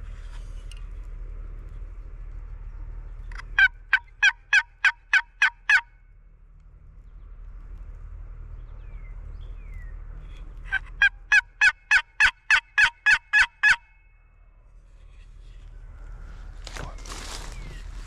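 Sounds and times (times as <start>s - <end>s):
turkey box call yelps: 3.3s - 6.0s, 10.7s - 14.0s.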